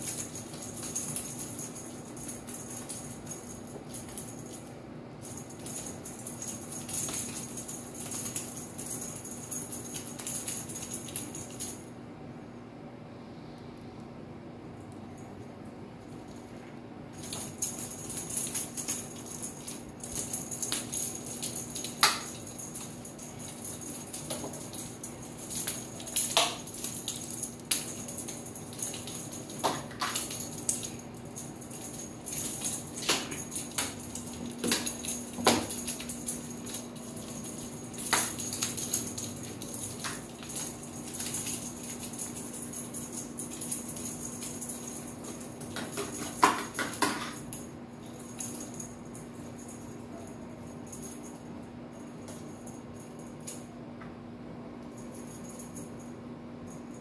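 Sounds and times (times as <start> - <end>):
cat toy being shaken: 0.0 - 12.0, 16.1 - 53.7
kitten pouncing on tile floor: 45.6 - 47.5.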